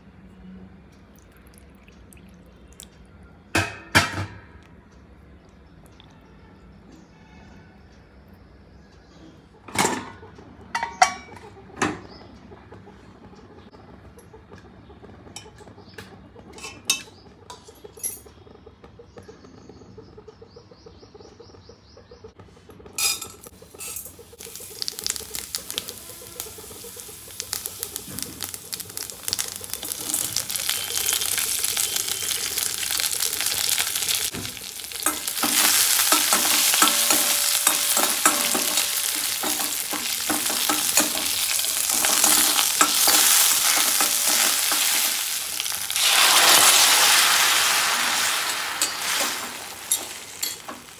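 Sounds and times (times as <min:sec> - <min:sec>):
spices sizzling in hot oil: 0:23.0 - 0:50.9.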